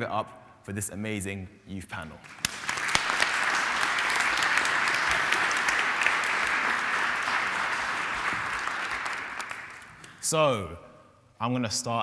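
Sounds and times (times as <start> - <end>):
audience applauding: 2.3 - 10.1.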